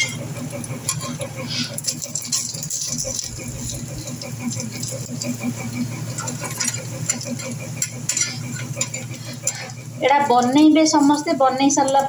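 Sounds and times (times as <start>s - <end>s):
fritters sizzling in oil: 0.0s - 12.0s
metal spatula scraping a pan: 0.9s - 3.9s, 6.1s - 9.8s.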